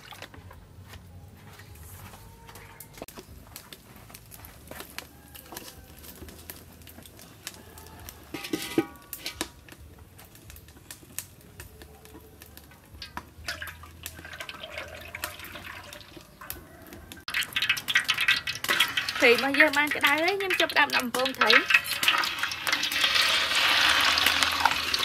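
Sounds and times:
wood fire crackling: 0.0s - 25.0s
metal wok clattering: 8.1s - 9.6s, 12.9s - 25.0s
oil pouring into wok: 12.9s - 16.6s, 17.2s - 25.0s.

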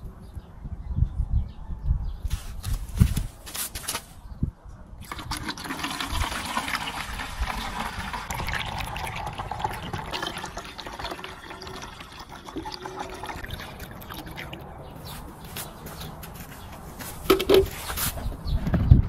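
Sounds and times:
water pouring into funnel: 5.0s - 14.6s.

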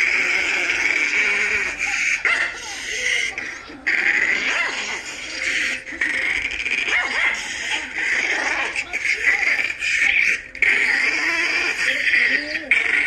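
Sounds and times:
small dog yapping and snarling: 4.2s - 5.8s.

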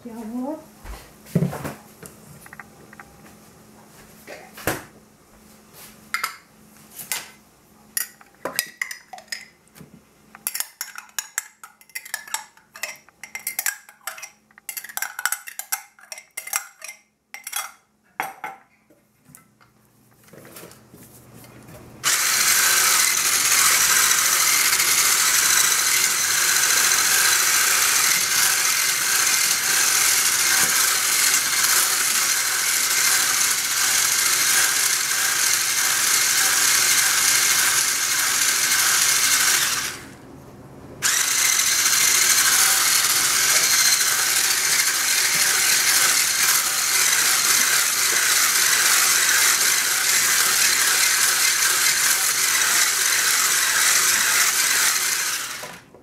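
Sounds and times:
electric whisk beating batter: 22.0s - 40.2s, 41.0s - 55.8s.

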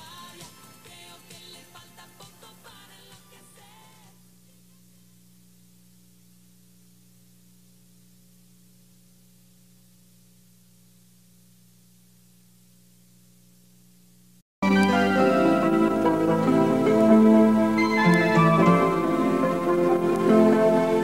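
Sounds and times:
faint electrical hum: 0.0s - 14.4s
song music: 14.6s - 21.0s.

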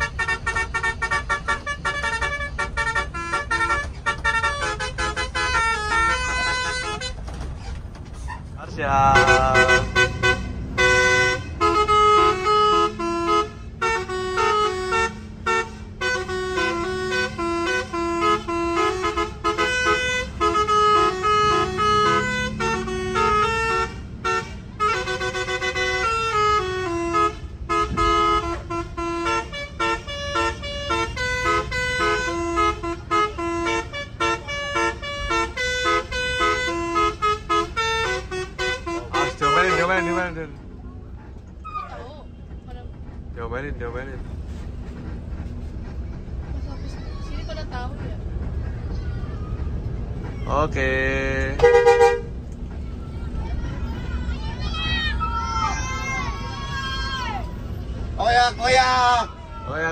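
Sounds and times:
musical air horn playing tune: 0.0s - 7.2s, 9.0s - 40.4s, 51.6s - 52.3s.

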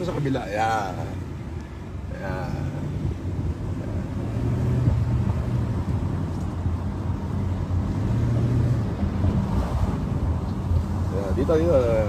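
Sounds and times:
car engine and road noise: 0.0s - 12.0s.

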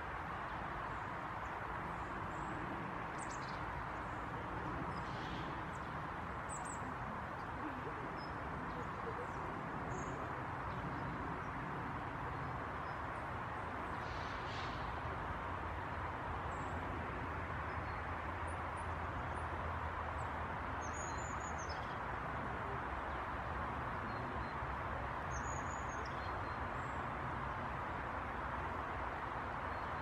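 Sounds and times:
small birds chirping: 25.3s - 27.2s.

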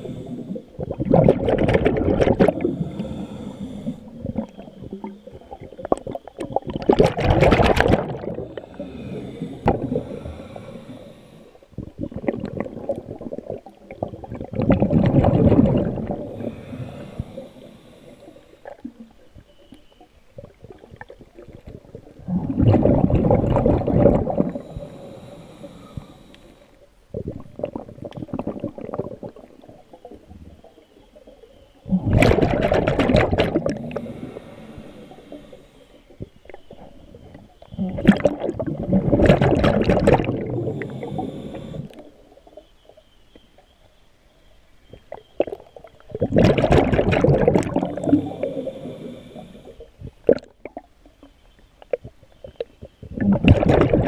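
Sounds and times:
regulator inhaling hiss: 0.0s - 0.9s, 2.1s - 5.7s, 7.8s - 11.8s, 15.6s - 19.0s, 23.8s - 26.9s, 33.3s - 37.4s, 40.2s - 42.2s, 47.5s - 50.1s
exhaled bubbles underwater: 0.0s - 19.5s, 20.3s - 26.4s, 27.1s - 43.0s, 44.9s - 51.2s, 51.8s - 54.0s.

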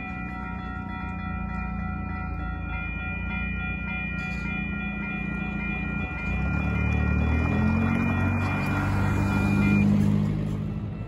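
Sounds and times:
whine of held tones: 0.0s - 10.0s
car engine and tyres: 0.0s - 11.0s.

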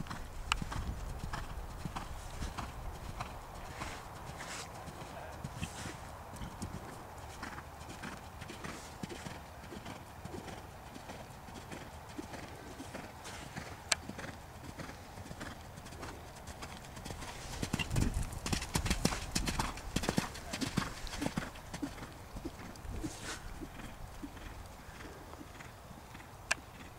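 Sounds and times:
horse hoofbeats on sand: 0.0s - 25.8s.

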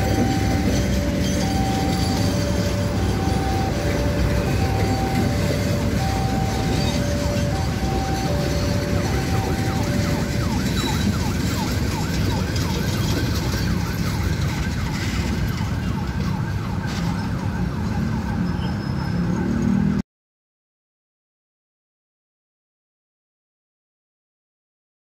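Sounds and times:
falling squeaks: 0.0s - 4.1s
two-tone warning signal: 0.0s - 15.4s
train coaches rumbling on rails: 0.0s - 18.0s.

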